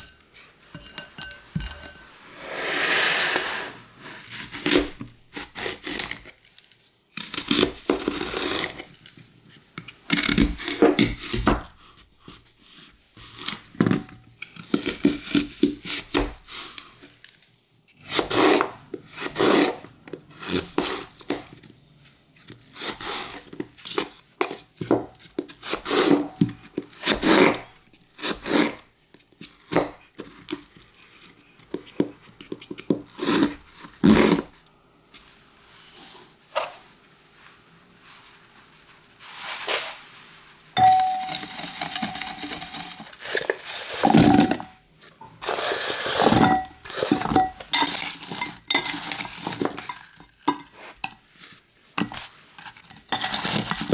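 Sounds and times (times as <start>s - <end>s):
knife cutting apples on wood: 7.2s - 8.8s, 18.0s - 21.4s, 22.7s - 28.8s.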